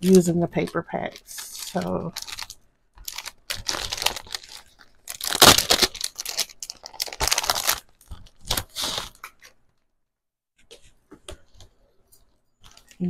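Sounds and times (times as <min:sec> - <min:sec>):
packaging crinkling and tearing: 0:01.1 - 0:09.6.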